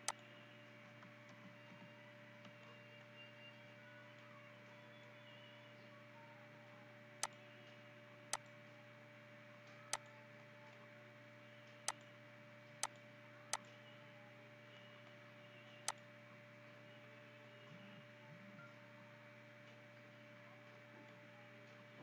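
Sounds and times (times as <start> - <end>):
faint electrical hum: 0.0 - 22.0.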